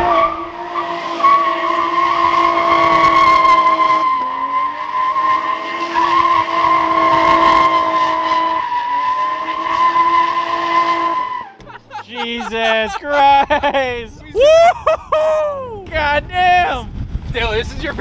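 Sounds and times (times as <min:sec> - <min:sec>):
car engine revving high: 0:00.0 - 0:11.6.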